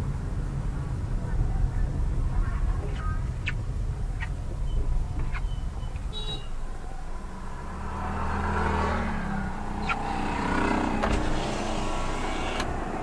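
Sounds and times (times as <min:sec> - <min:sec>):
steady low rumble: 0:00.0 - 0:07.8
vehicle engine running: 0:00.0 - 0:13.0.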